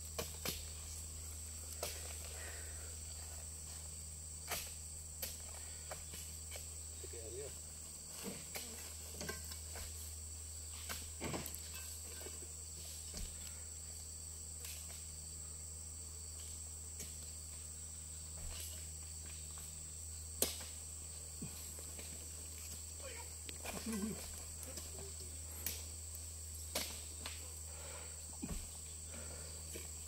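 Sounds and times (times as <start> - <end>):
insects shrilling: 16.3 - 30.0.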